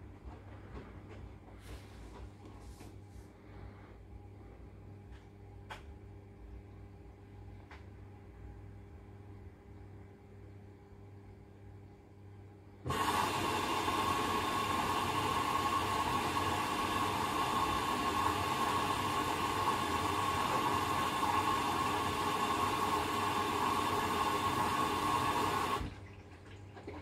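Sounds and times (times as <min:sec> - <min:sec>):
washing machine filling with water: 0:12.8 - 0:27.0.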